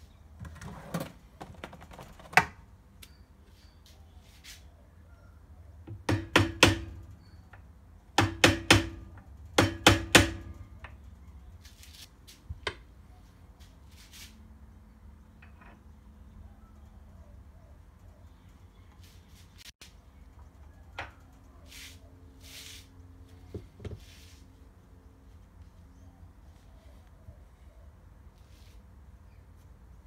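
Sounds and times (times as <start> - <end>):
hammer tapping metal: 5.9 - 7.2, 8.2 - 10.9.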